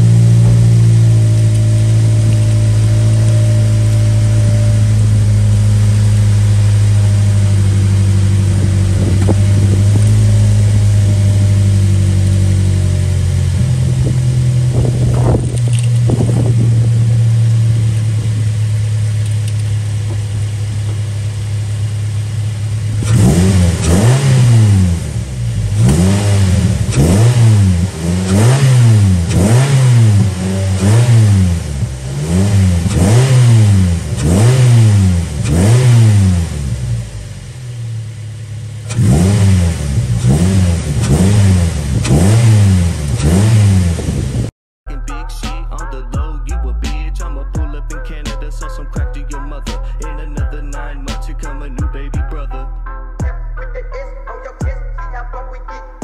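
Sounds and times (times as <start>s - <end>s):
car engine idling and revving: 0.0s - 44.5s.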